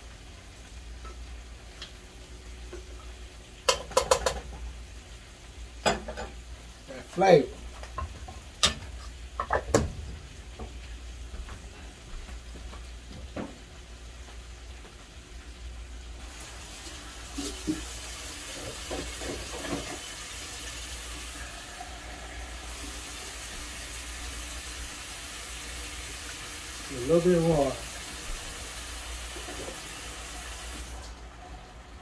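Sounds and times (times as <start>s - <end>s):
kitchen tap running: 2.7s - 4.8s, 16.1s - 31.4s
kitchenware knocks and clinks: 3.7s - 4.5s, 5.8s - 6.4s.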